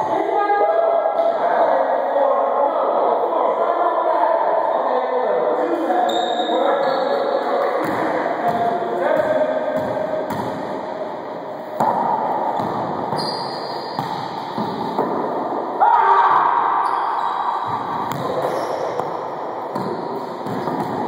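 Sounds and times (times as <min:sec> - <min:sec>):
loud echoing ball slaps: 0:07.6 - 0:10.8, 0:11.8 - 0:13.2, 0:13.9 - 0:16.6, 0:17.5 - 0:21.0.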